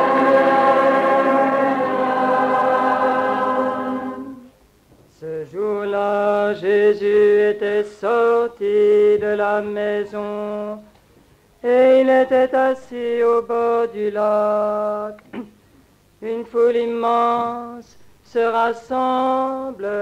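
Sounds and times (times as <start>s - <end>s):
person chanting: 0.0s - 4.5s.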